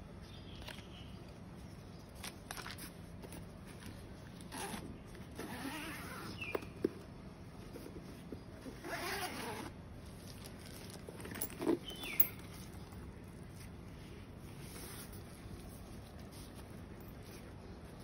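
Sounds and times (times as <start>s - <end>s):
zipper on fabric bag: 4.4s - 6.4s, 8.6s - 9.8s
fabric bag rustling: 7.7s - 17.7s.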